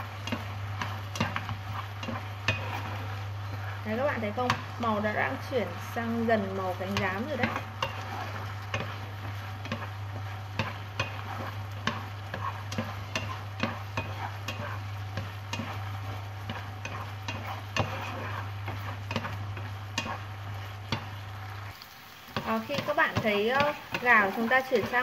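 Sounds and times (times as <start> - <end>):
chicken sizzling in frying pan: 0.0 - 25.0
steady low hum: 0.0 - 25.0
chopsticks knocking pan: 6.8 - 9.0, 22.4 - 25.0.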